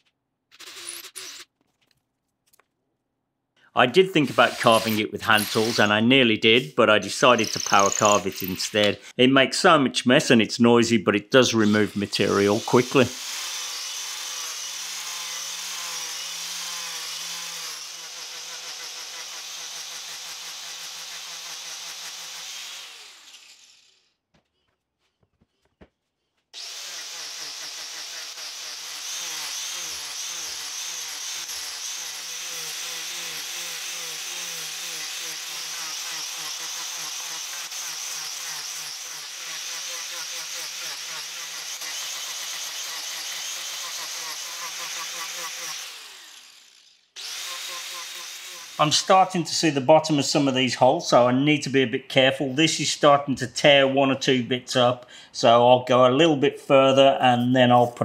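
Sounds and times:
angle grinder whining: 0.5s - 1.5s, 4.1s - 9.2s, 11.4s - 24.1s, 26.6s - 50.6s
disc rasping wood: 4.2s - 6.0s, 26.6s - 49.2s.

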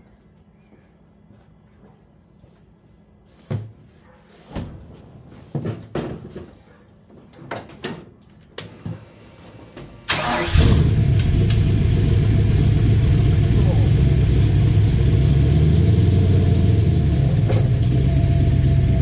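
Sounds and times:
go-kart engine starting and running: 10.1s - 19.0s.

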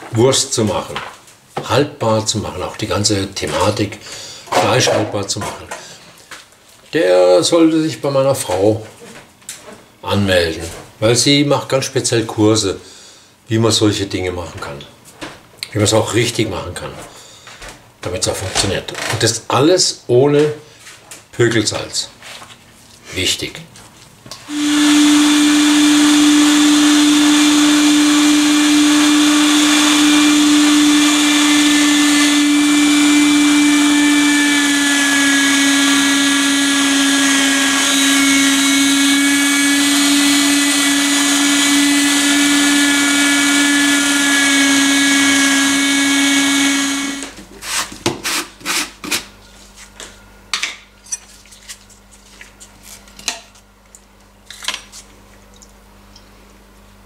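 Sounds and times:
meat grinder motor humming: 24.5s - 47.4s.

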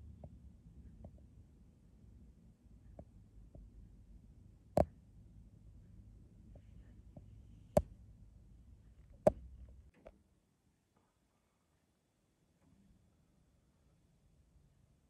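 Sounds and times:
faint low rumble: 0.0s - 10.2s.

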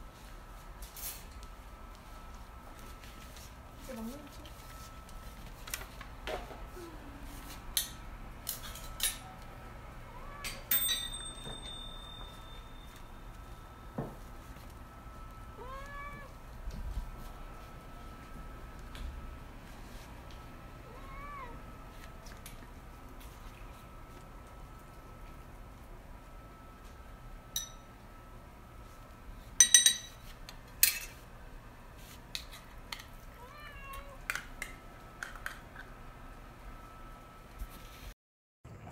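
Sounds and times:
dish clinking: 10.5s - 13.0s, 29.6s - 30.2s
cat meowing: 15.6s - 16.4s, 20.8s - 21.6s, 33.4s - 34.3s.

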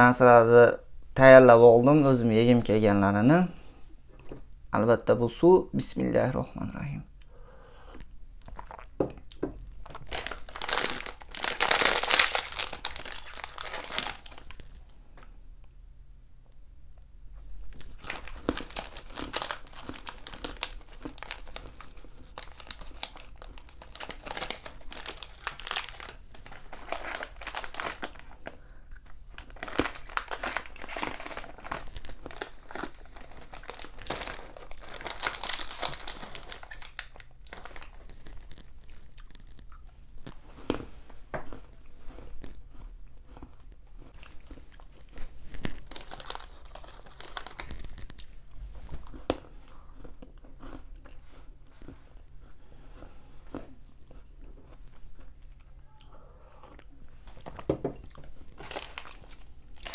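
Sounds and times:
snack wrappers crinkling: 9.8s - 15.0s, 17.6s - 40.9s, 41.5s - 52.3s, 58.2s - 59.9s.

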